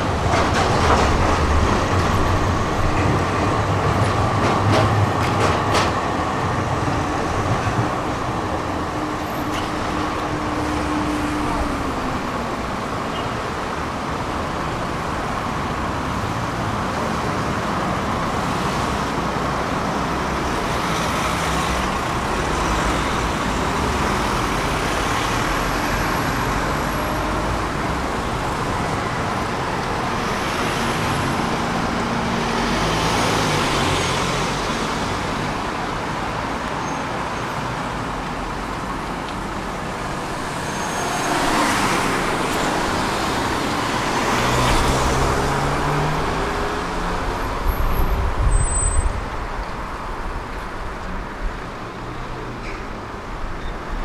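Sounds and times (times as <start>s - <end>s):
cars and vans driving past: 0.0s - 54.0s.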